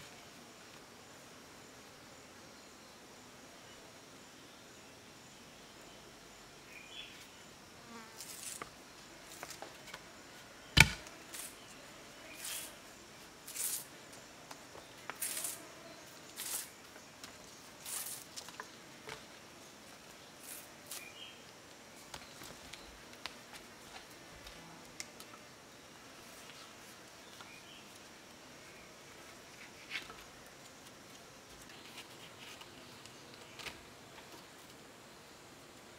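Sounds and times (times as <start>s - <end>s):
sharp crack: 10.8s - 11.5s.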